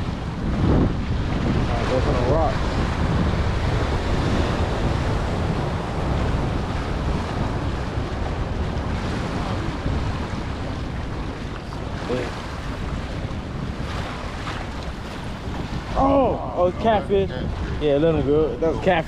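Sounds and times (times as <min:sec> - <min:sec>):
waves splashing over rocks: 0:00.0 - 0:19.0
wind buffeting microphone: 0:00.0 - 0:19.0.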